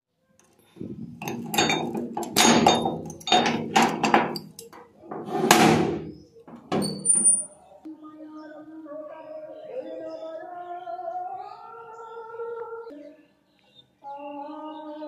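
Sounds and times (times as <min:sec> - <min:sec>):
metal door scraping open: 0:00.8 - 0:07.6
padlock and keys clanking on metal: 0:00.8 - 0:07.6.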